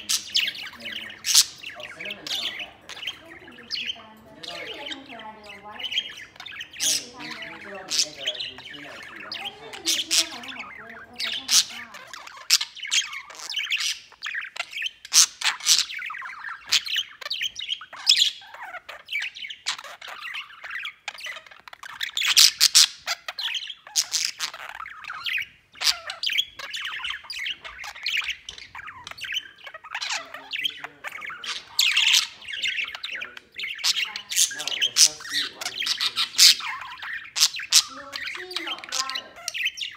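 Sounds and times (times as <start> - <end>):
budgerigar chattering and warbling: 0.0 - 39.9.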